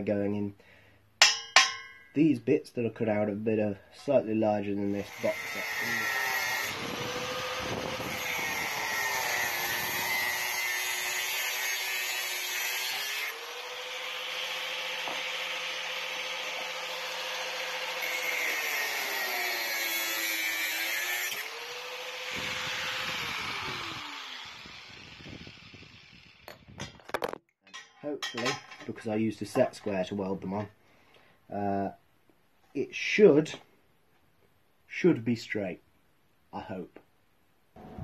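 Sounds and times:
angle grinder cutting metal: 4.9 - 26.8.

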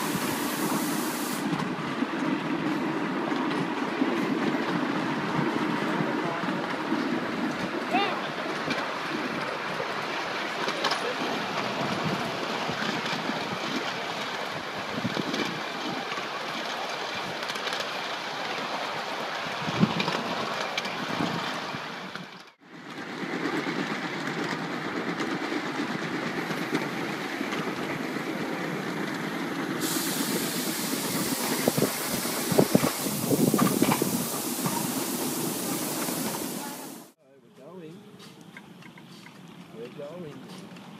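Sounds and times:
steam hissing: 0.0 - 1.7, 26.4 - 37.2
train wheels rattling: 0.0 - 37.2.

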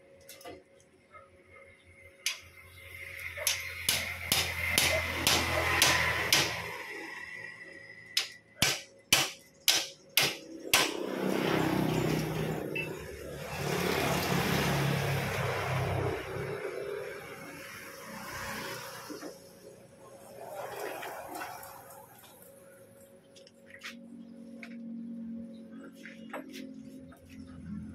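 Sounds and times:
sharp metallic knocks: 3.4 - 6.8, 8.2 - 11.2.

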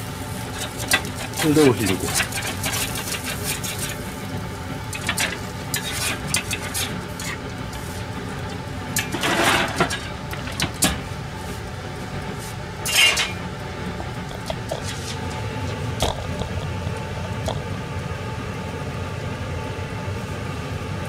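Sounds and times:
metal spatula scraping pan: 0.6 - 4.0, 4.9 - 8.0, 9.0 - 11.0, 12.8 - 13.4.

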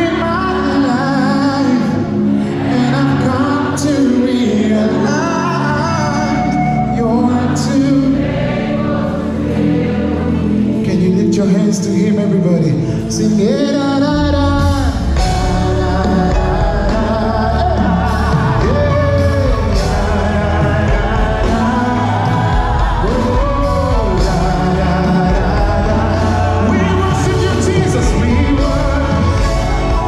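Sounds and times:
backing vocalists singing: 0.0 - 12.0, 12.6 - 30.0
lead singer: 0.0 - 30.0
drums: 14.0 - 30.0.

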